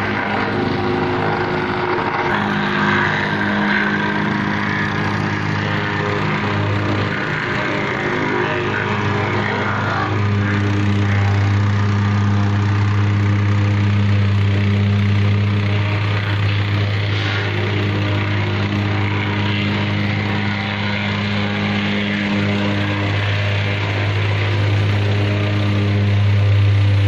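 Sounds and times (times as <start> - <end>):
small engine running steadily: 0.0 - 27.0.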